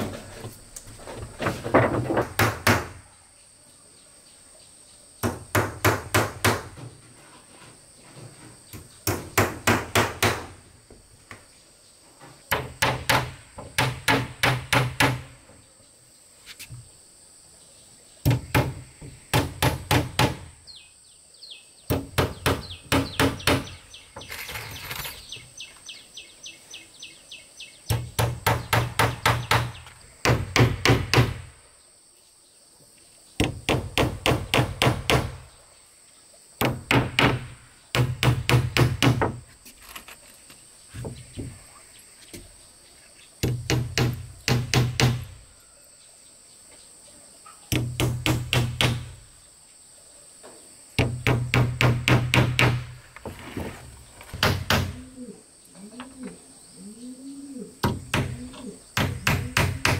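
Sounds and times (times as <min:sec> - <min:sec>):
high insect drone: 0:00.0 - 0:59.9
hammer driving nails into wood: 0:12.5 - 0:15.3, 0:27.9 - 0:31.5, 0:33.4 - 0:35.4, 0:36.6 - 0:39.4, 0:43.4 - 0:45.3, 0:47.7 - 0:49.2, 0:51.0 - 0:52.9, 0:59.0 - 0:59.9.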